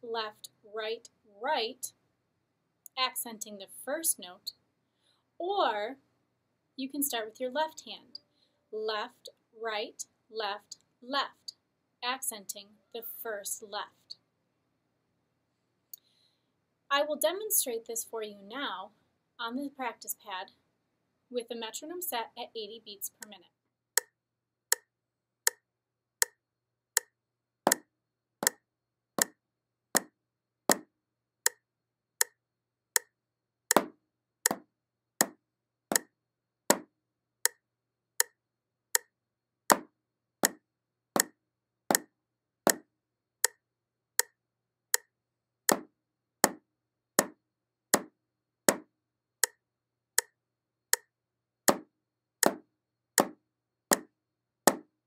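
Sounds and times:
drumsticks on practice pad: 27.7s - 28.6s, 30.0s - 30.9s, 33.7s - 34.6s, 35.2s - 36.1s, 39.7s - 40.6s, 53.2s - 54.1s
metronome ticking: 35.2s - 36.1s.

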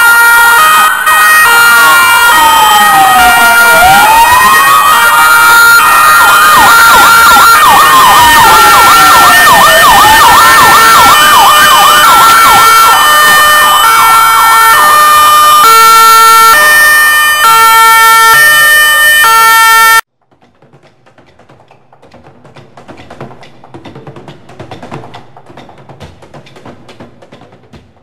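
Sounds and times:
hi-lo two-tone siren: 0.0s - 20.1s
siren wail: 0.0s - 20.1s
siren yelp: 0.0s - 20.1s.

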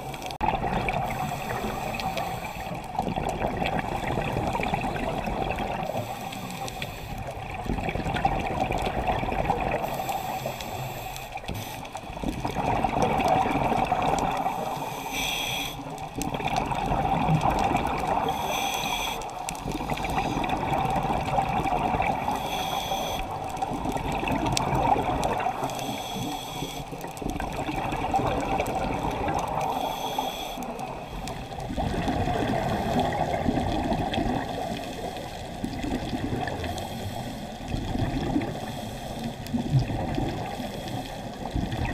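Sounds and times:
gurgling exhaled bubbles: 0.0s - 14.9s, 15.8s - 41.9s
regulator hiss on inhale: 1.0s - 2.9s, 5.7s - 7.3s, 9.8s - 12.2s, 14.4s - 16.0s, 18.2s - 20.5s, 22.2s - 23.4s, 25.6s - 27.0s, 29.5s - 31.5s, 34.5s - 35.5s, 36.6s - 37.8s, 38.4s - 39.6s, 40.4s - 41.6s.

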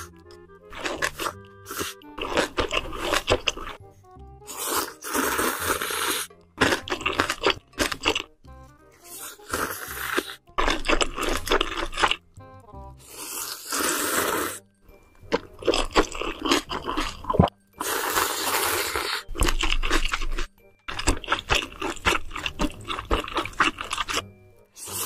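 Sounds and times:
noisy slurping of noodles: 0.7s - 3.8s, 4.5s - 8.1s, 9.0s - 12.2s, 13.0s - 14.6s, 15.6s - 24.2s, 24.8s - 25.0s
wet chewing clicks: 0.7s - 3.8s, 4.5s - 8.4s, 9.0s - 12.2s, 15.2s - 25.0s.

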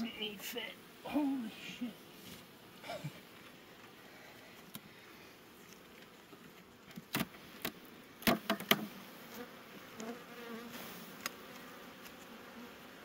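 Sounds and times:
bees buzzing: 7.3s - 13.0s.

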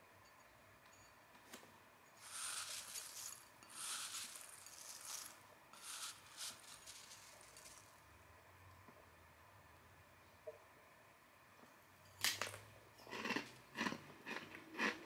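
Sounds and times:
fingers stirring snacks in a bowl: 2.2s - 8.0s, 13.1s - 15.0s.

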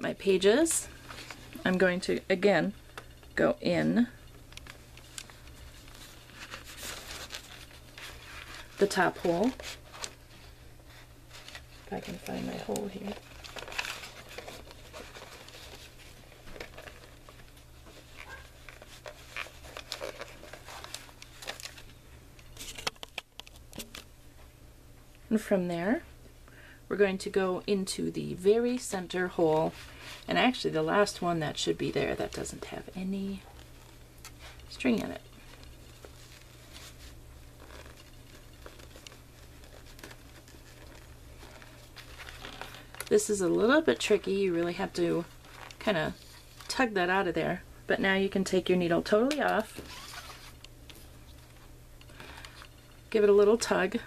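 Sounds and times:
steady low hum: 0.0s - 54.0s
paper and cardboard rustling: 3.9s - 24.1s, 28.6s - 46.9s.

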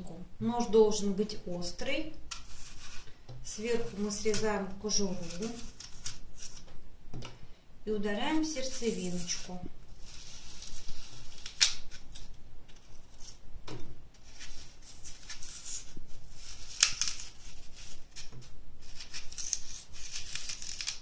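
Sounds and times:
knife scraping apple: 2.3s - 6.6s, 8.6s - 13.4s, 14.2s - 21.0s.

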